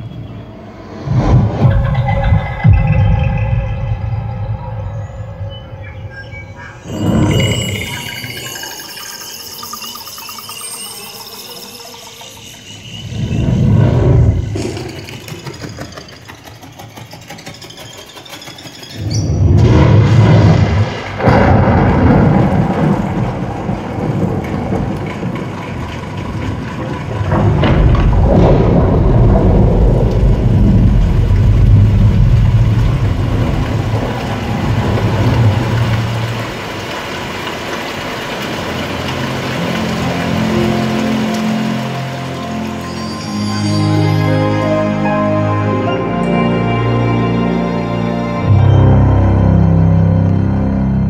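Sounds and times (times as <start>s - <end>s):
deep cinematic rumbling: 0.0s - 8.8s, 12.1s - 16.8s, 19.1s - 37.0s
thunder-like cracks: 19.4s - 41.9s
rain-like hiss: 20.3s - 45.6s
low musical notes: 38.6s - 51.0s.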